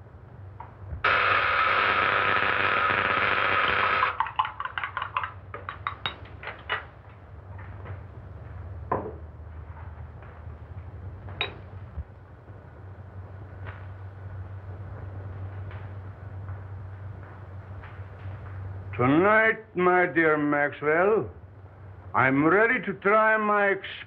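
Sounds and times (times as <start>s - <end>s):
film soundtrack hum and hiss: 0.0s - 24.0s
high-pitched electrical buzzing: 1.0s - 4.2s.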